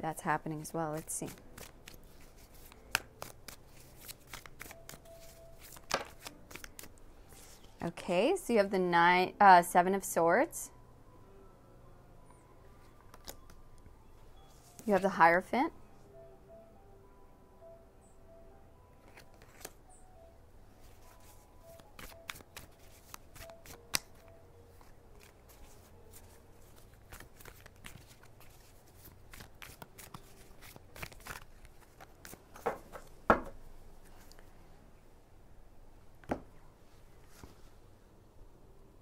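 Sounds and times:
cards being shuffled: 0.8s - 7.8s, 12.9s - 13.6s, 19.0s - 19.8s, 20.8s - 34.4s.

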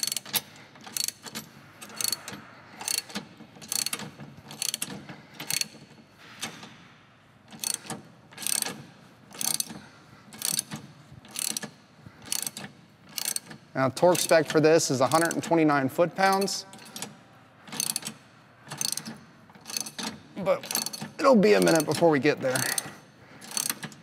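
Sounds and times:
socket ratchet clicking: 0.0s - 6.6s, 7.5s - 9.8s, 10.4s - 14.4s, 16.3s - 24.0s.

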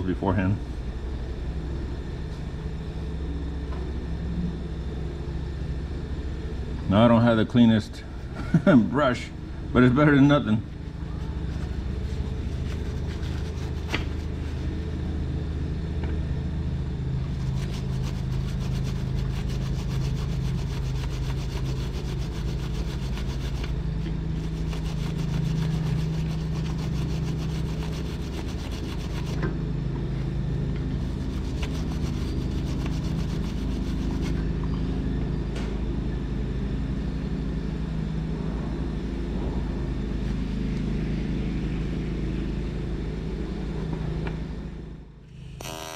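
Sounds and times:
low machine hum: 0.0s - 45.9s
hand brush scrubbing metal: 12.5s - 14.7s, 17.3s - 29.4s, 31.0s - 34.4s.

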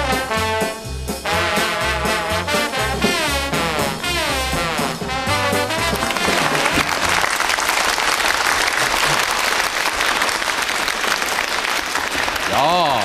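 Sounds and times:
brass swing music: 0.0s - 7.6s
audience applauding: 5.3s - 13.0s.

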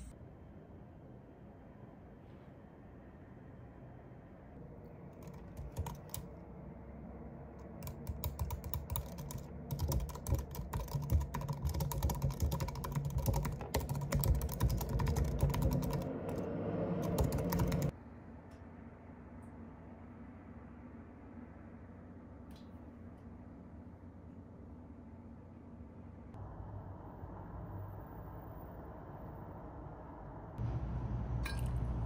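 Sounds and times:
typing on laptop keyboard: 5.1s - 6.3s, 7.6s - 16.4s, 17.0s - 17.9s.

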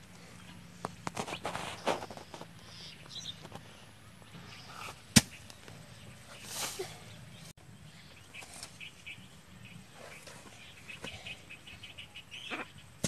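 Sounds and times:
hoe chopping into dry soil: 4.8s - 5.6s.

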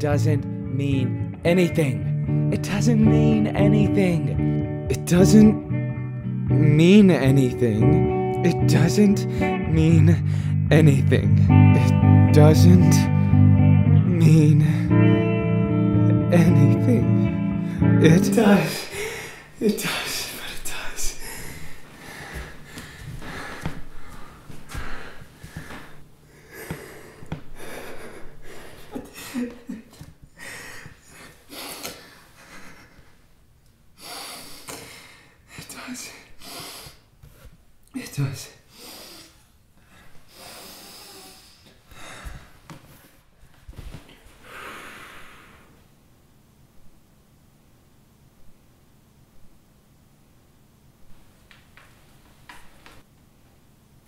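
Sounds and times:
man sobbing: 2.6s - 5.6s, 6.8s - 13.3s, 16.1s - 21.6s, 26.4s - 33.1s
man breathing heavily: 10.2s - 10.7s, 18.7s - 29.7s, 30.3s - 33.2s, 34.0s - 37.6s, 38.6s - 43.3s.

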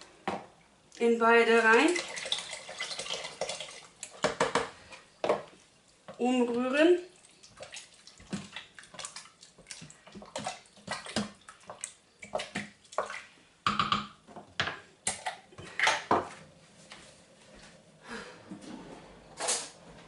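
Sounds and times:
spoon stirring soup: 3.2s - 13.3s
spoon knocking against pot: 13.6s - 14.8s.

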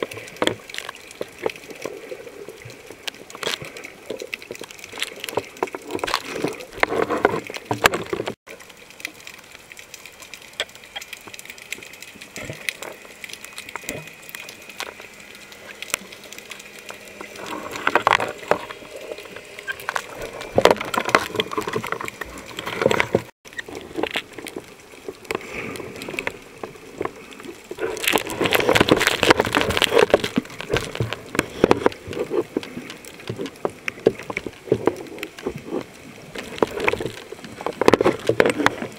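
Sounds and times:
muffled underwater water wash: 0.0s - 38.9s
small crackling clicks underwater: 0.0s - 38.9s.

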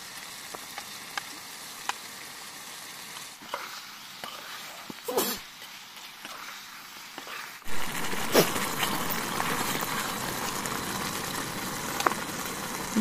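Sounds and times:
gravy sizzling in a frying pan: 0.0s - 13.0s
spatula scraping a pan: 3.4s - 10.6s.

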